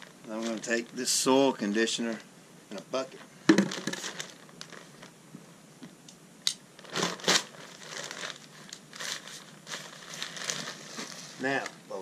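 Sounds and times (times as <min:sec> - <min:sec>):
plastic bag crinkling: 0:00.0 - 0:01.2, 0:03.1 - 0:05.2, 0:06.8 - 0:12.0.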